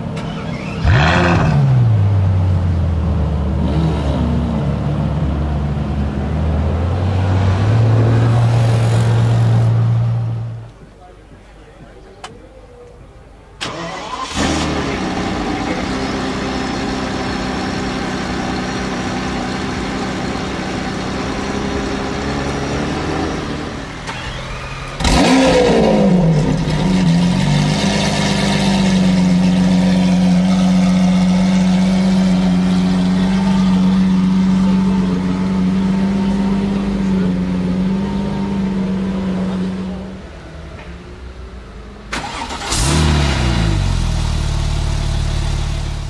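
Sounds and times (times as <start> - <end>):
loud engine cranking and revving: 0.0 - 2.2, 13.7 - 40.1, 42.2 - 46.0
supercar engine starting and idling: 0.0 - 8.0, 13.5 - 46.0.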